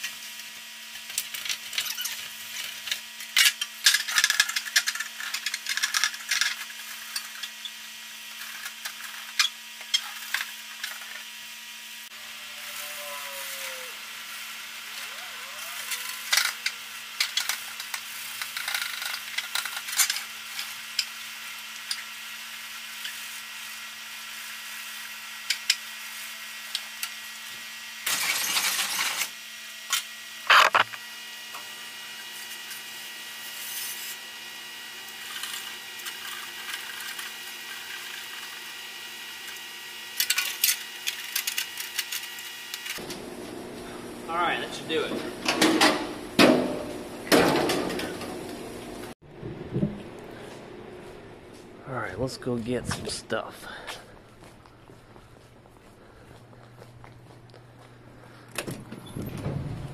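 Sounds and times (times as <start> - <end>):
steady hum: 2.4 - 59.9.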